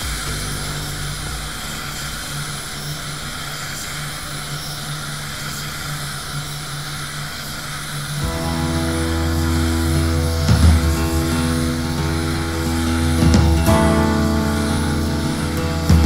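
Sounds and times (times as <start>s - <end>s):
low even hum: 8.2s - 16.0s.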